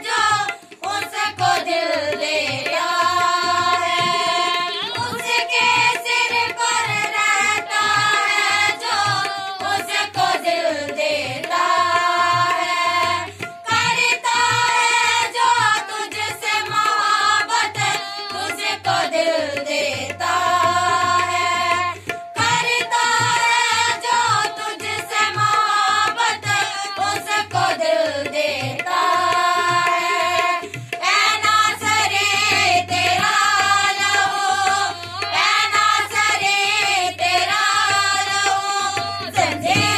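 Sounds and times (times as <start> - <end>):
women singing worship song: 0.0 - 39.9
drum beat: 39.2 - 39.9.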